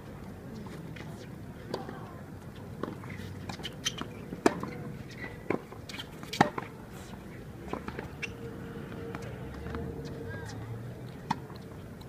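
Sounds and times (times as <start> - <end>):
tennis balls bouncing on court: 0.6 - 6.8, 7.6 - 12.0
tennis balls struck with rackets: 2.8 - 6.7, 7.6 - 8.3, 11.2 - 11.8.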